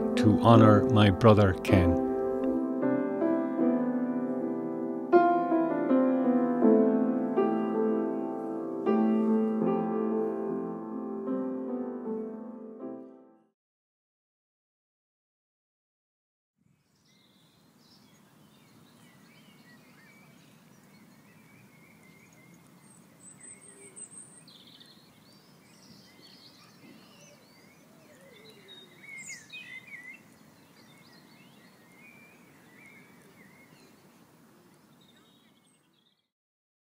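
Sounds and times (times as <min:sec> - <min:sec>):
birds chirping and calling: 0:18.0 - 0:36.2.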